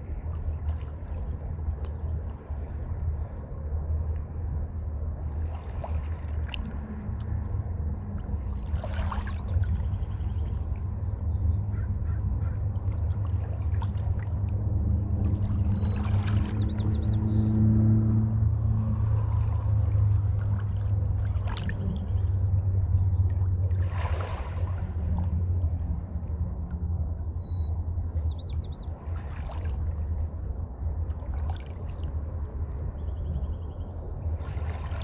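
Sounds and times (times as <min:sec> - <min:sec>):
boat engine rumble: 0:00.0 - 0:35.0
faint high bird chirps: 0:27.1 - 0:28.9.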